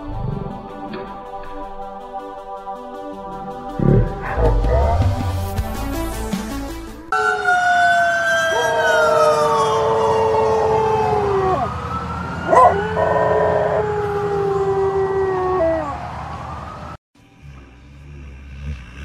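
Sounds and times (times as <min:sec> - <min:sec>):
dog howling: 0:07.1 - 0:11.7, 0:12.5 - 0:16.0
siren sweeping in pitch: 0:07.1 - 0:14.8.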